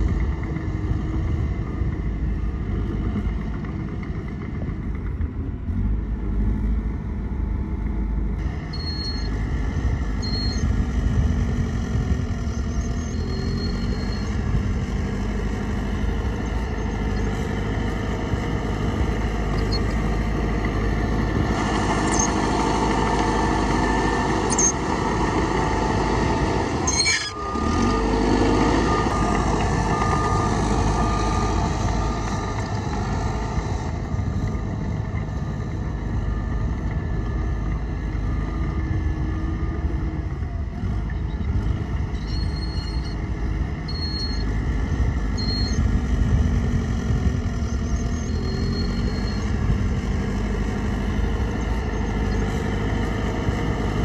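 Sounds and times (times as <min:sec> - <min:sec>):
heavy diesel machinery running: 0:00.0 - 0:54.0.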